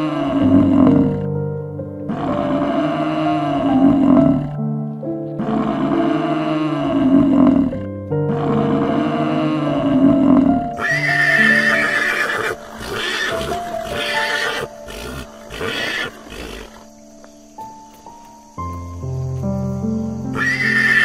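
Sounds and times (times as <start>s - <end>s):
gentle background music: 0.0s - 21.0s
animal calls: 5.4s - 17.1s, 20.3s - 21.0s.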